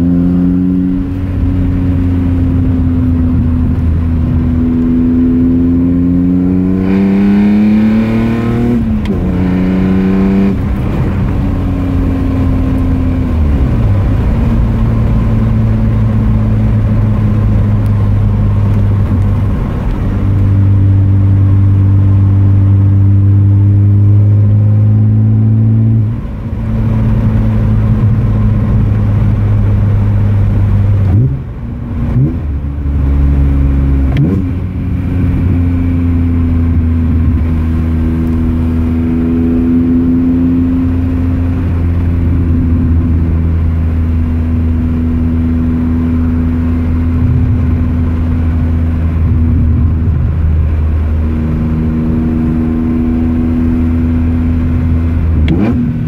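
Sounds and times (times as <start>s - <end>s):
car engine from inside cabin: 0.0s - 56.0s.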